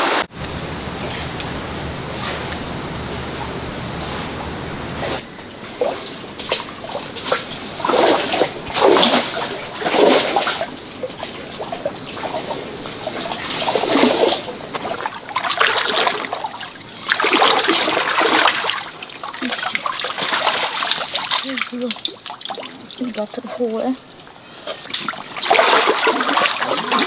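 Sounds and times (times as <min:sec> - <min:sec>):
water splashing in a stream: 0:04.8 - 0:27.0.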